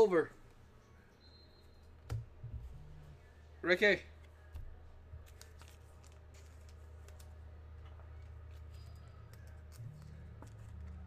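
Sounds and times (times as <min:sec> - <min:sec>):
low electrical hum: 0:00.0 - 0:11.0.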